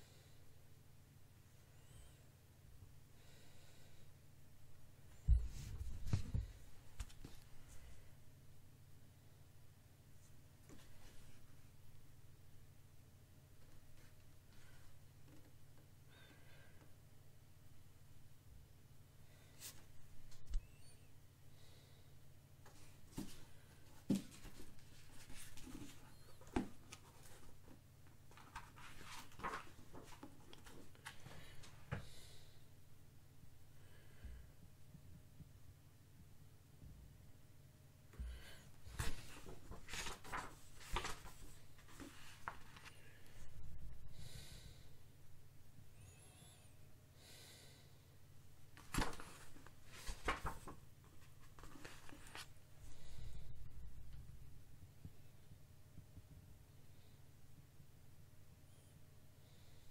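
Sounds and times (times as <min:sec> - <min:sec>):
low steady hum: 0:00.0 - 0:59.9
paper rustling: 0:22.7 - 0:31.7, 0:38.8 - 0:43.2, 0:48.8 - 0:52.6
book cover scraping and rustling: 0:39.0 - 0:42.9, 0:48.8 - 0:52.5.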